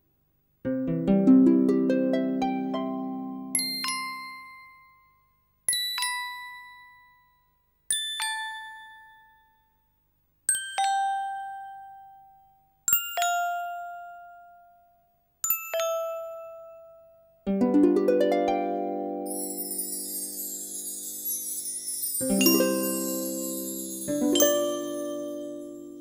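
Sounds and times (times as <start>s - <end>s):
bell-like ding-dong chime: 3.6s - 9.7s, 10.5s - 12.2s, 15.5s - 17.1s, 19.3s - 26.0s.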